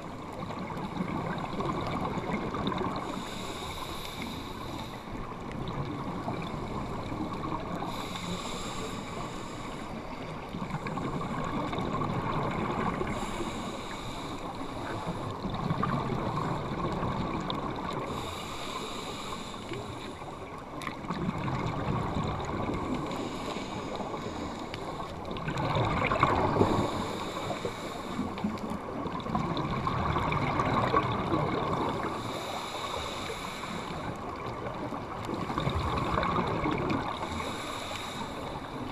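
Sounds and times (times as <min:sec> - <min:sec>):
steady underwater hiss: 0:00.0 - 0:38.9
diver exhaling bubbles underwater: 0:25.4 - 0:27.0, 0:29.2 - 0:32.2, 0:34.6 - 0:37.4.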